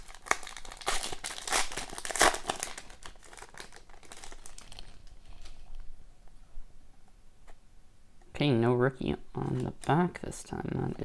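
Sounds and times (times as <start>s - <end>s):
foil wrapper crinkling and tearing: 0.0s - 5.8s.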